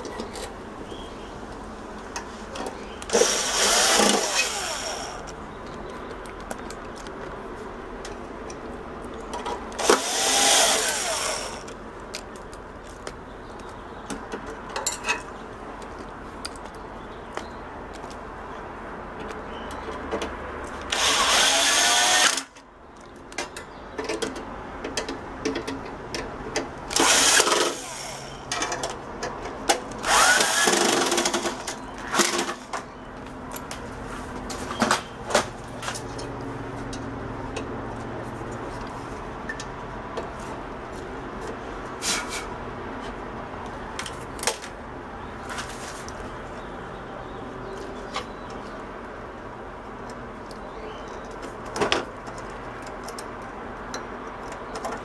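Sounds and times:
power drill driving screws: 3.1 - 5.3, 9.8 - 11.7, 20.9 - 22.5, 26.9 - 28.4, 30.0 - 32.7
handling clicks and knocks: 22.9 - 27.0, 50.0 - 55.0.

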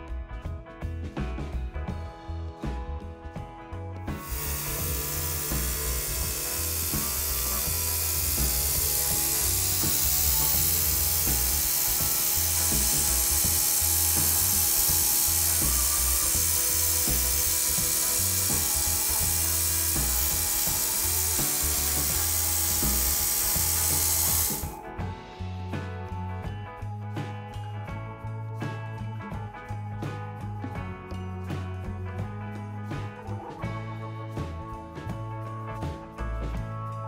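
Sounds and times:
background music with bass line: 0.0 - 37.0
paint spray hiss: 4.2 - 24.8.

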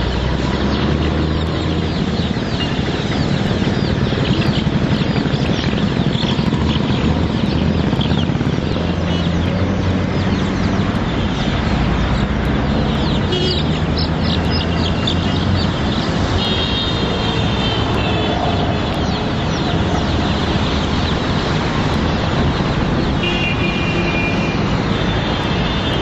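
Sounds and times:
road traffic rumble: 0.0 - 26.0
chicks peeping: 0.5 - 16.4, 18.3 - 23.2.

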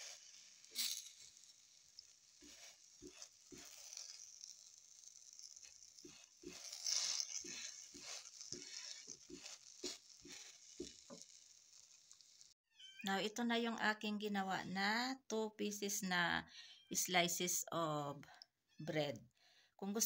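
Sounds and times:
bread sizzling in a frying pan: 0.0 - 12.6.

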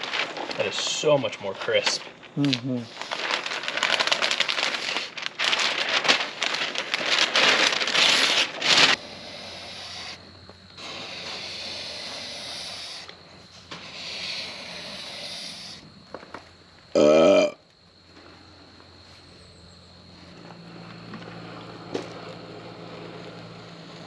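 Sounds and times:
masking paper crackling and crinkling: 0.0 - 16.6
rubbing hiss: 7.2 - 16.1.

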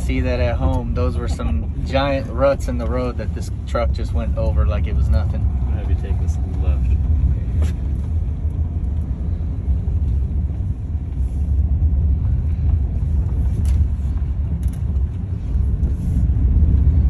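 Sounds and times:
road and tyre rumble: 0.0 - 17.0.

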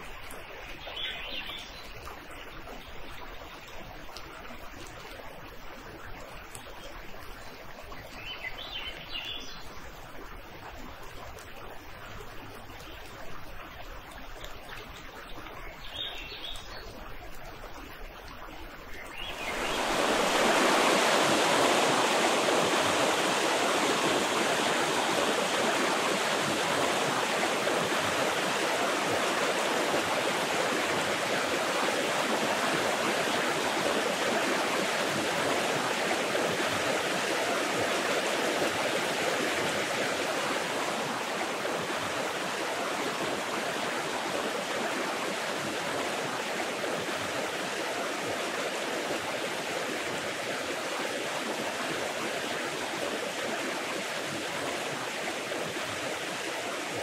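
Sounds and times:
waterfall rushing: 19.3 - 57.0.

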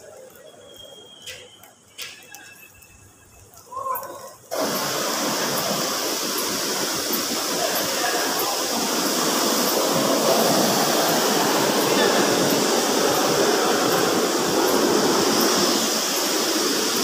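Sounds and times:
water rushing: 3.6 - 17.0.

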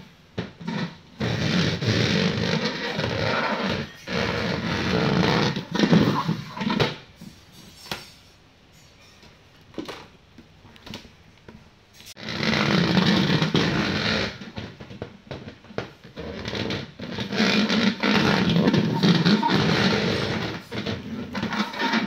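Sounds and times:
plastic tub scraping on tile floor: 0.4 - 8.0, 12.1 - 22.0.

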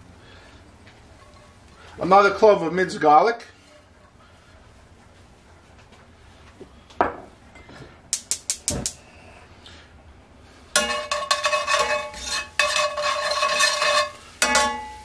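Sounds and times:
metal tongs clinking on a pan: 10.8 - 15.0.

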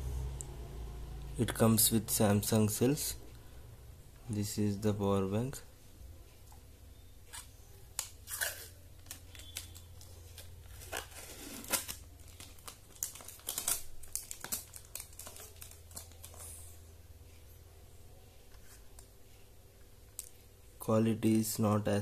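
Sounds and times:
plastic packaging crinkling: 8.0 - 16.7.

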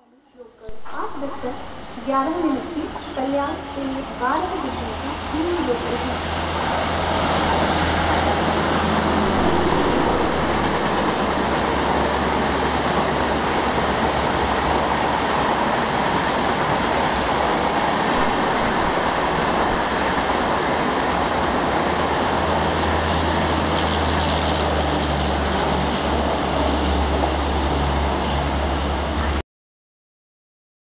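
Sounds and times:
low hum: 0.0 - 5.4, 6.0 - 13.8, 17.1 - 20.6
train wheels on rails: 5.5 - 29.3.

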